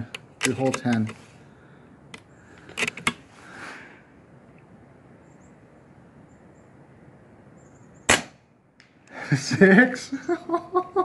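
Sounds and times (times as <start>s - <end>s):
air rifle lever clicks: 0.1s - 1.2s, 2.1s - 3.2s.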